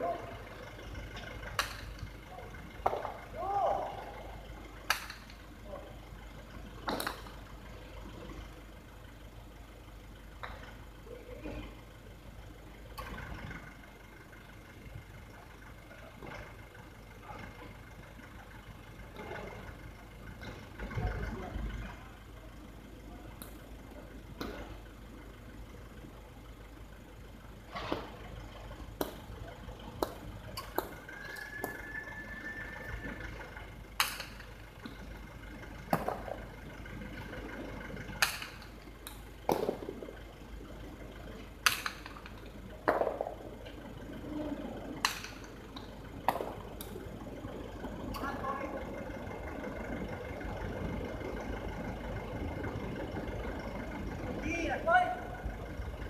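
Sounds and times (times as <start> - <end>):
ball cracking against walls: 38.2 - 40.2, 41.6 - 43.5, 45.0 - 47.0.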